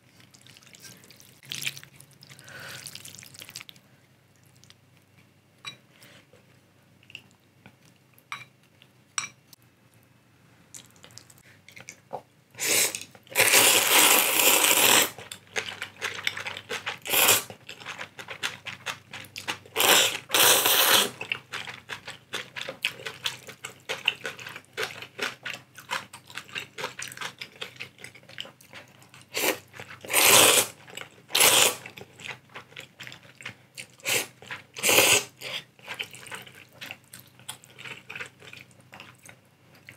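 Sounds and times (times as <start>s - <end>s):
wet chewing: 0.2s - 3.8s, 14.8s - 39.9s
slurping noodles: 12.6s - 15.2s, 17.0s - 17.5s, 19.8s - 21.2s, 29.3s - 30.8s, 31.4s - 31.8s, 34.0s - 36.4s.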